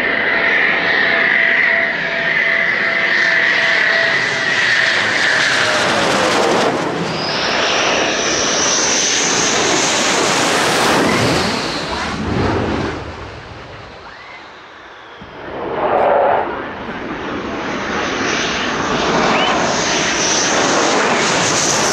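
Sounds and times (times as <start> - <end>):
fighter jets passing overhead: 0.0 - 21.9.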